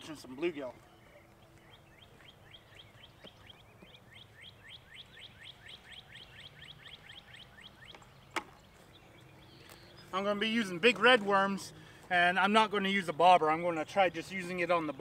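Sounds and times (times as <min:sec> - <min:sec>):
songbird whistling: 0:00.7 - 0:10.2.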